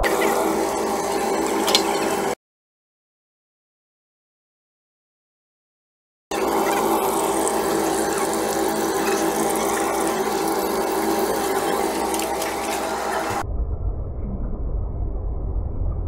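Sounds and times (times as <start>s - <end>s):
steady hum: 0.0s - 2.4s, 6.3s - 16.0s
oil sizzling in frying pan: 0.2s - 2.4s, 6.4s - 13.4s.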